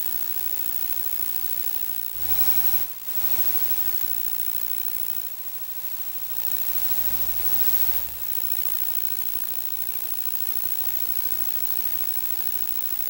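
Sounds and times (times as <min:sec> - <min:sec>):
compressor hiss and drone: 0:01.1 - 0:09.2.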